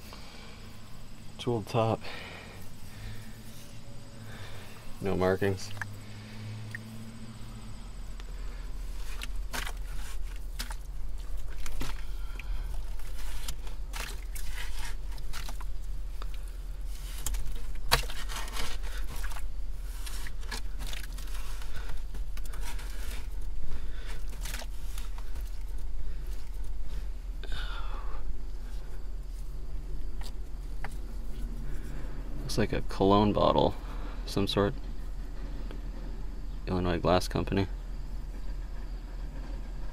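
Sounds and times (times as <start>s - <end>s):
steady low hum: 0.0s - 39.9s
hand tool scraping dirt: 8.3s - 27.1s.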